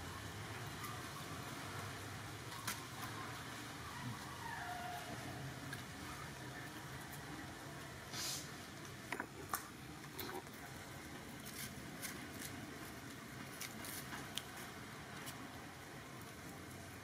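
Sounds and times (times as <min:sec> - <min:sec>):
crackles of dry leaves and soil: 0:00.0 - 0:17.0.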